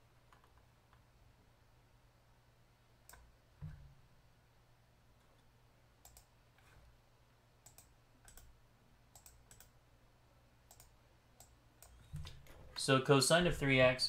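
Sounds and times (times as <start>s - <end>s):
computer mouse clicks: 3.1s - 3.7s, 6.0s - 6.8s, 7.6s - 8.5s, 9.1s - 9.8s, 10.7s - 12.6s.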